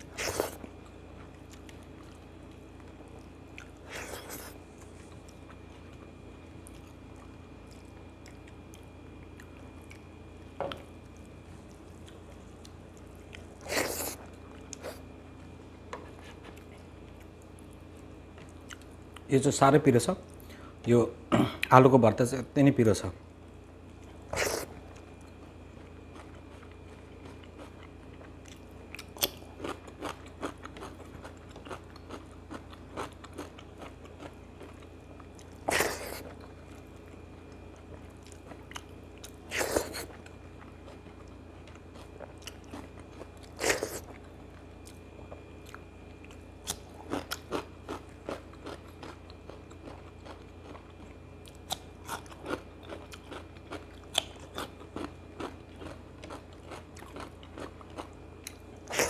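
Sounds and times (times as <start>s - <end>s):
wet chewing and lip smacks: 0.4s - 14.9s.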